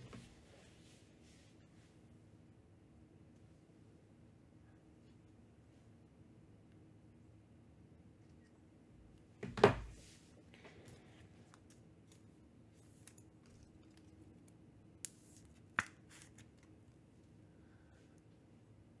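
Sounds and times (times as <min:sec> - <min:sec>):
light rustling of packaging: 0:10.1 - 0:17.4.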